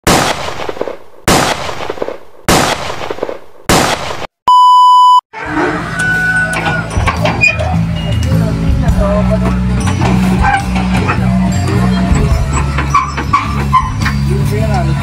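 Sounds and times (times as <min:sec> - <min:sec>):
test-tone beep: 0:04.5 - 0:05.2.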